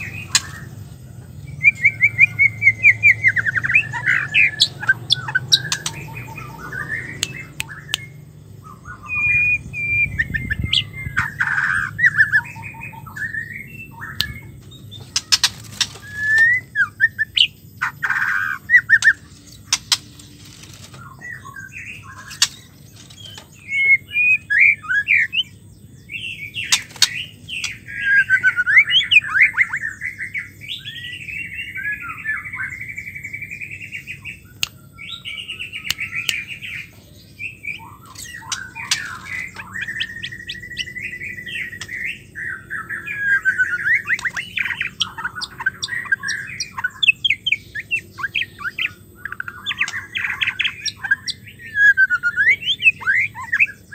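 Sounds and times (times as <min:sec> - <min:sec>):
bird singing whistles and warbles: 0:00.0 - 0:53.9.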